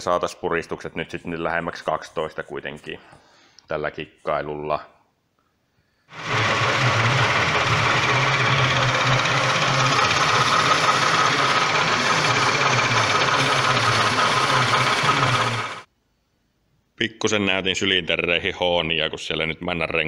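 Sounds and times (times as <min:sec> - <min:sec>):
power tool machining metal: 0:06.1 - 0:15.9.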